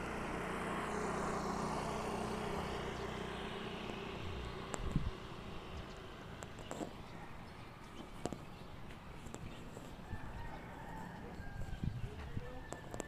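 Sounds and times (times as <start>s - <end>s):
motorcycle engine passing: 0.0s - 7.7s.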